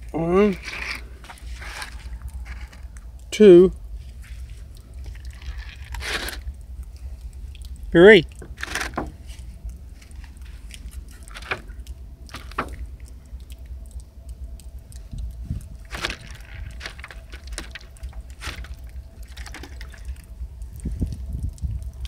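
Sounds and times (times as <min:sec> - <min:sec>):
steady low rumble: 0:00.0 - 0:22.0
water dripping and trickling: 0:00.0 - 0:22.0.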